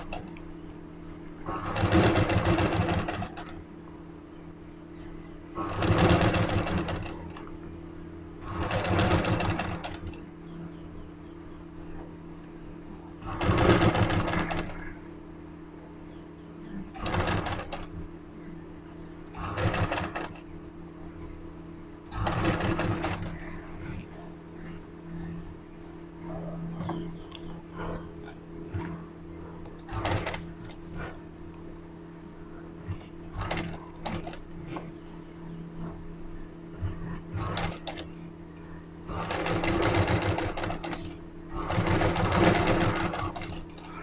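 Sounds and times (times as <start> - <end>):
steady low hum: 0.0 - 44.0
sewing machine stitching: 1.5 - 3.6, 5.6 - 7.4, 8.4 - 10.2, 13.2 - 14.9, 17.0 - 17.9, 19.4 - 20.4, 22.1 - 23.5, 29.9 - 31.2, 33.2 - 34.8, 37.1 - 38.1, 39.1 - 43.9.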